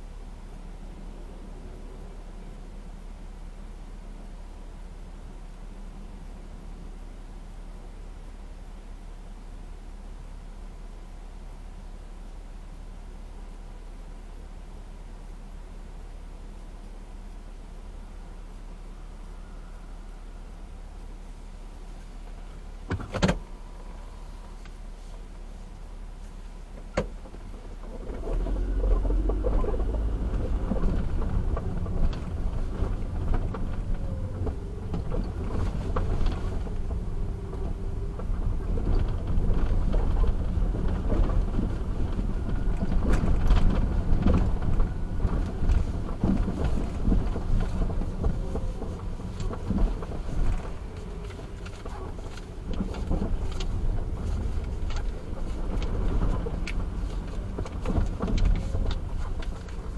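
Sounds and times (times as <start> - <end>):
car engine and tyre rumble: 0.0 - 59.9
car rattles and knocks: 26.8 - 59.9.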